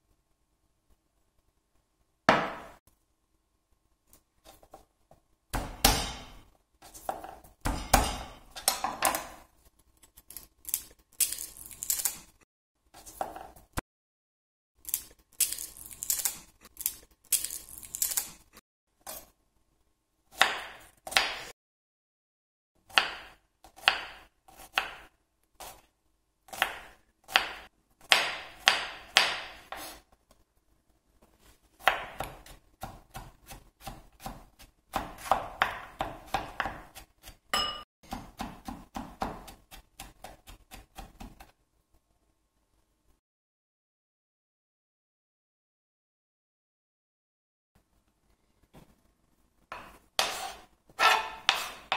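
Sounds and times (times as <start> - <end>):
knife chopping on cutting board: 2.3 - 2.8, 5.5 - 9.4, 20.4 - 21.5, 22.9 - 25.8, 26.5 - 30.0, 31.8 - 41.5, 49.7 - 51.9.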